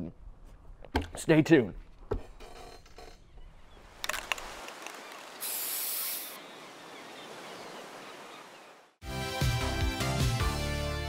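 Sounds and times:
steady hiss: 4.5 - 6.4
bright rush of noise: 5.2 - 6.4
theme music with a beat: 9.0 - 11.0.

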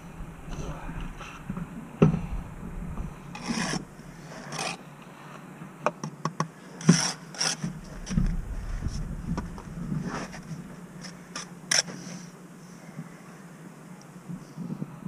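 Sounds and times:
trowel scraping mortar: 3.3 - 4.8, 6.8 - 8.2.

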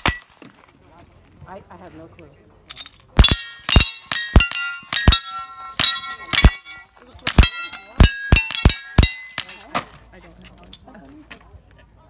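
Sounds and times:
steel plate target clanging: 0.0 - 0.6, 2.7 - 9.9
rifle shots: 3.2 - 9.7.

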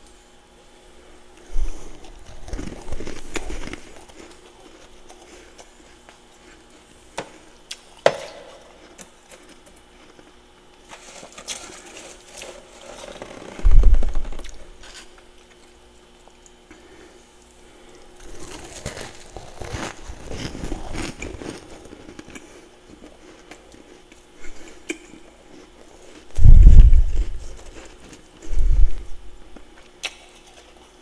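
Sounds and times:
chewing frost crunching: 0.0 - 31.0
hand scraping frost: 10.9 - 15.1, 18.2 - 22.7.

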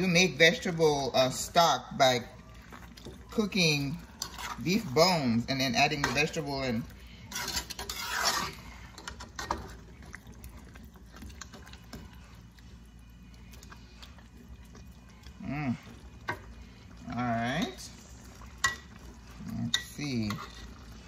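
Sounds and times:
metal utensil scraping a pot: 3.4 - 10.1, 18.6 - 21.0.

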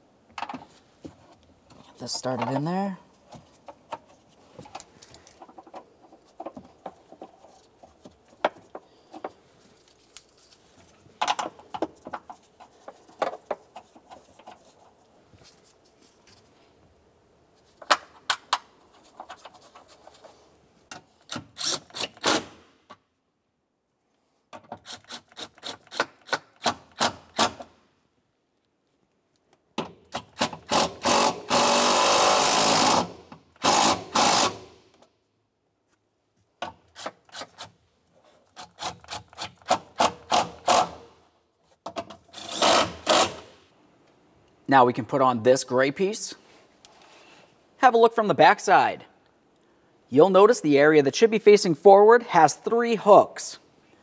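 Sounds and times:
bolts rubbing and ticking: 0.3 - 16.5, 17.6 - 22.3.

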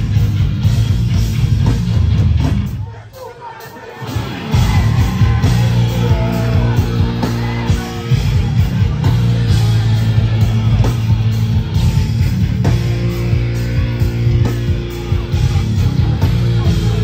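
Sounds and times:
distorted guitars and bass: 0.0 - 2.8, 3.8 - 17.0
pounding drums: 3.9 - 17.0.

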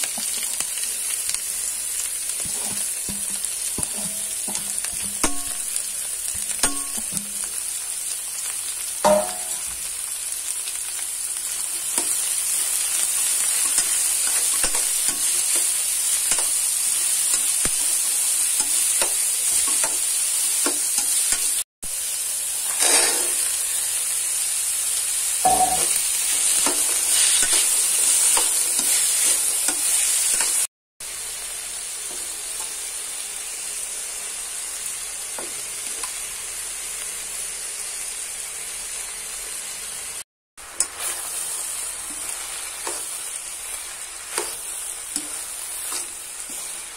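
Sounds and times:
vegetables sizzling in oil: 0.0 - 46.9
spatula scraping a pan: 2.3 - 5.7, 22.6 - 23.6, 25.4 - 30.6, 40.8 - 46.9.

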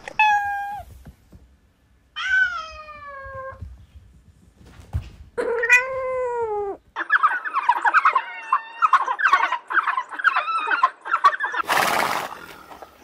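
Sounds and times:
cat meowing: 0.0 - 0.9, 2.2 - 3.6, 5.4 - 6.8.

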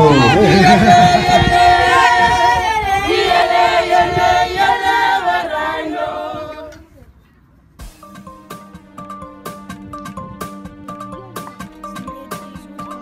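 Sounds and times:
group singing unaccompanied: 0.0 - 6.8
light instrumental music: 7.8 - 13.0.

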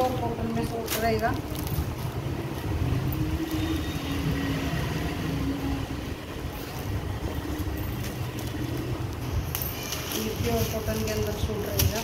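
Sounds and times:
fabric rustling: 0.0 - 4.2, 6.3 - 12.0.

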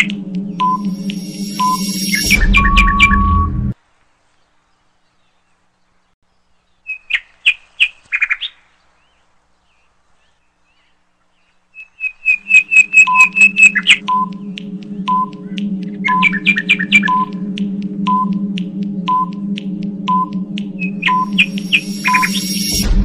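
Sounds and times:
high chirping ticks: 0.0 - 3.2, 11.8 - 22.9
steady low hum: 0.0 - 3.8, 12.4 - 23.0
short beeps: 0.6 - 3.7, 12.5 - 14.3, 20.1 - 22.9.

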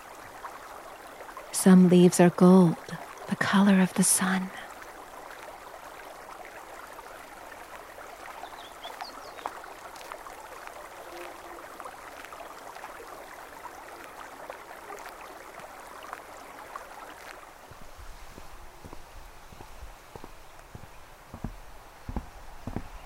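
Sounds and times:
river rushing over stones: 0.0 - 23.0
bird chirps: 8.4 - 9.5.

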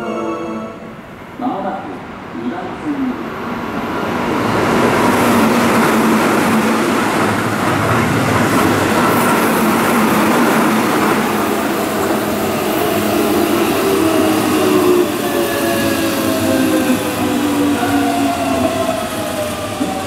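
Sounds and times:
electric train humming tones: 0.0 - 1.4, 3.4 - 20.0
train wheels rumbling on rails: 3.7 - 20.0.

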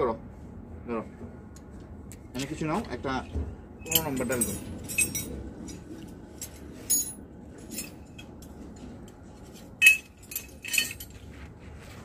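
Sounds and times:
metal hand tools clinking: 3.8 - 5.8, 9.5 - 11.2.

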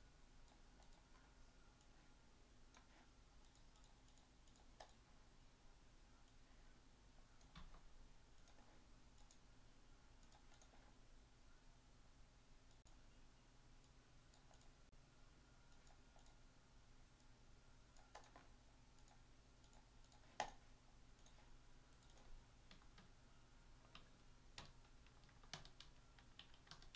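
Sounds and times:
low steady hum: 0.0 - 26.9
keyboard and mouse clicking: 0.4 - 2.0, 2.7 - 5.0, 7.4 - 9.4, 10.2 - 11.0, 13.8 - 14.8, 15.7 - 16.4, 17.9 - 20.6, 21.2 - 23.1, 23.8 - 26.9.

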